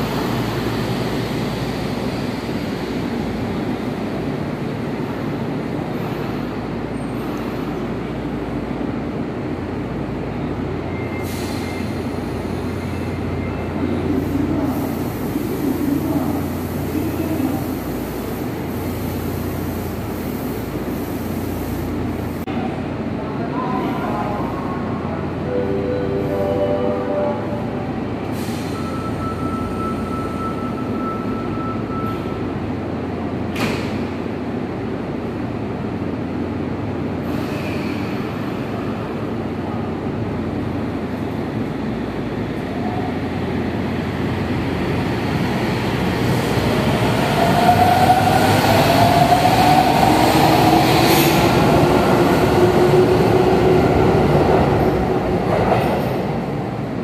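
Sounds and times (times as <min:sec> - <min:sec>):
train hum: 0:00.0 - 0:31.0, 0:32.0 - 0:57.0.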